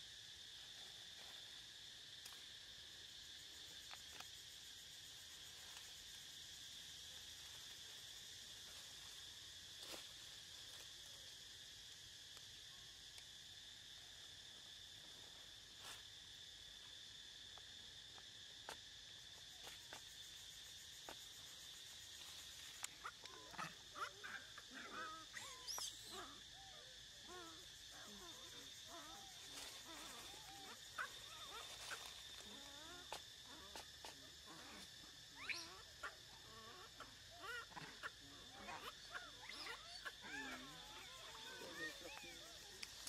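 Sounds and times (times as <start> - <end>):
high-pitched insect drone: 0.0 - 43.0
high squeaky animal calls: 23.1 - 26.3.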